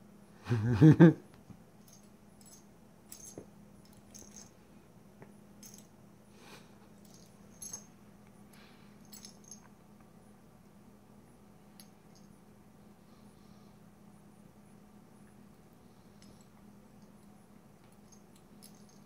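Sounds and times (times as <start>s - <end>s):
faint steady hum: 0.0s - 19.0s
collar tag jingling: 1.8s - 4.6s, 5.5s - 6.0s, 6.9s - 8.0s, 9.0s - 9.8s, 16.1s - 19.0s.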